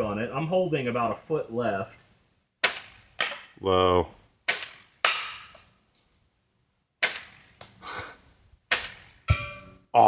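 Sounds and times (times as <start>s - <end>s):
coil gun firing sharp cracks: 2.6s - 3.5s, 4.4s - 5.7s, 7.0s - 7.8s, 8.7s - 9.2s.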